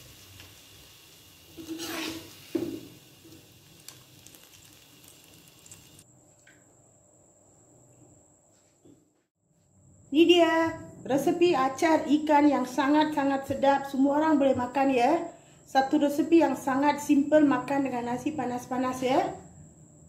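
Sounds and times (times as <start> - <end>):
faint steady hiss: 0.0 - 8.8.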